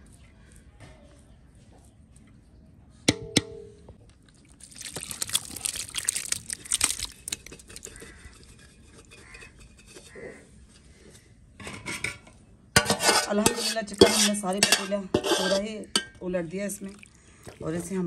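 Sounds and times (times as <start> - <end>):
curry scraping and sliding: 12.8 - 15.8
metal pot clank: 12.8 - 16.2.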